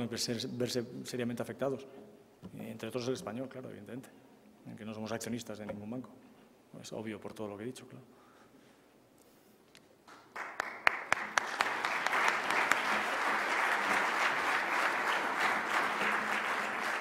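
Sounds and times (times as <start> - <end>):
audience applauding: 10.1 - 17.0.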